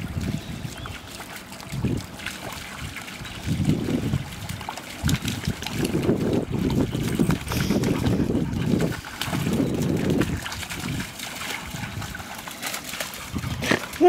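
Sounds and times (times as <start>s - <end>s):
dogs splashing through water: 0.0s - 14.0s.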